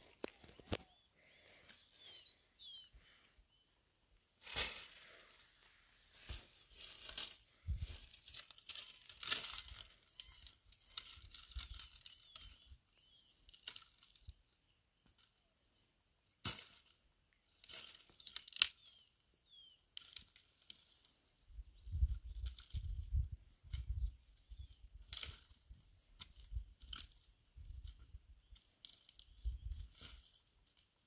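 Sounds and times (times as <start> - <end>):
branches rustling and scraping: 0.0 - 2.4, 4.3 - 15.4, 16.4 - 19.2, 19.8 - 31.0
dry wood snapping: 8.3 - 12.5, 13.5 - 14.1, 16.4 - 16.9, 17.6 - 18.9, 25.0 - 25.5.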